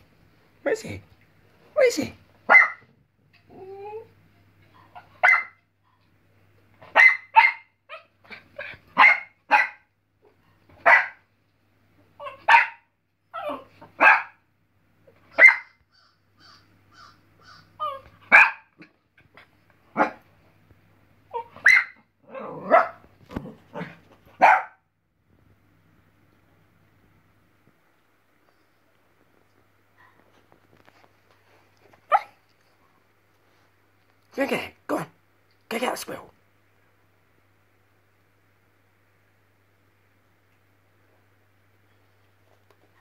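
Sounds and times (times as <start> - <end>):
puppy barking: 2.5 - 2.9, 4.9 - 5.6, 6.9 - 9.9, 10.8 - 11.2, 12.2 - 14.4, 15.3 - 15.8, 16.4 - 18.8, 19.9 - 20.2, 21.4 - 23.0, 23.8 - 24.8, 32.1 - 32.4.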